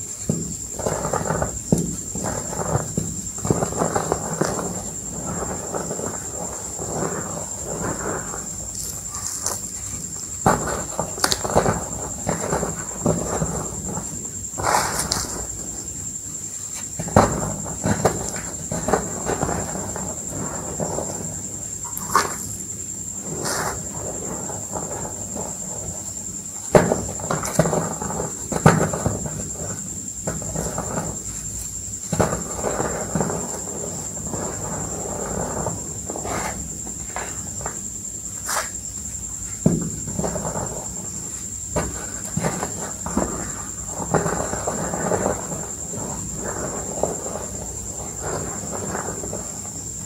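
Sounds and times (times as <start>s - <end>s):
chalk crunching and crumbling: 8.0s - 11.5s.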